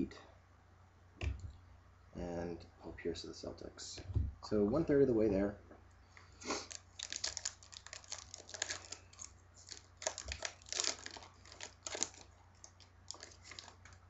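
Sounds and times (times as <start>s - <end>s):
wrapper tearing and crinkling: 6.6s - 14.0s.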